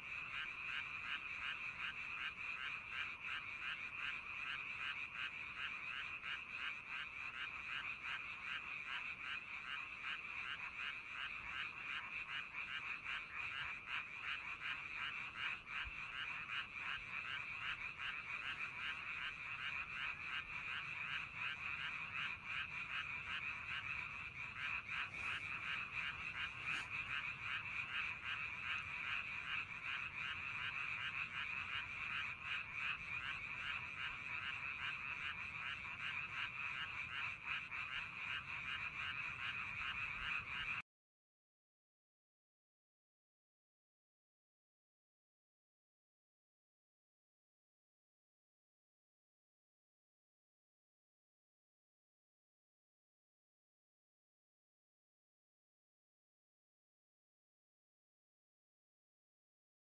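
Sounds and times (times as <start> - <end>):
frogs croaking: 0.0 - 40.8.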